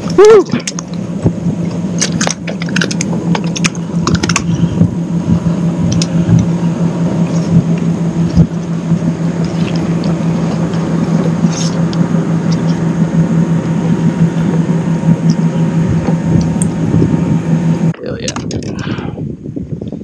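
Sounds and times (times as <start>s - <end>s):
rumbling water: 0.0s - 20.0s
steady low hum: 0.0s - 20.0s
fishing gear clicks and rattles: 2.0s - 4.5s.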